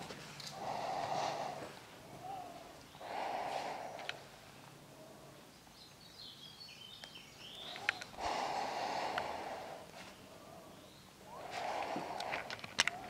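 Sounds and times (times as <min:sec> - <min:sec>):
person breathing: 0:00.5 - 0:05.4, 0:07.8 - 0:13.0
bird chirps: 0:05.5 - 0:08.2.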